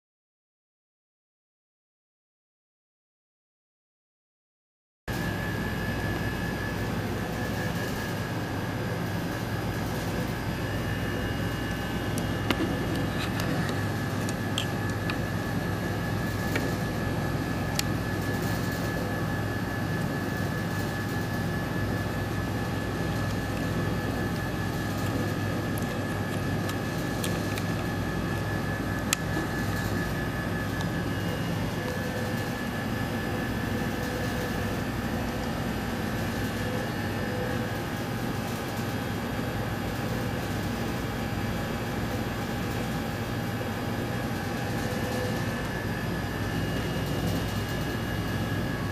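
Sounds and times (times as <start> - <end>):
cooling fans and ventilation drone: 5.1 - 48.9
faint high whine: 5.1 - 48.9.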